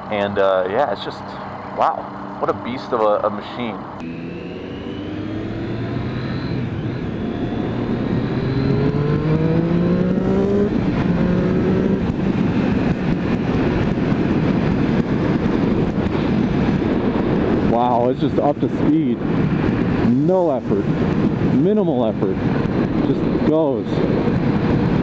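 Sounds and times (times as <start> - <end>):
motorcycle engine accelerating: 1.3 - 17.8
wind rushing on microphone: 4.6 - 25.0.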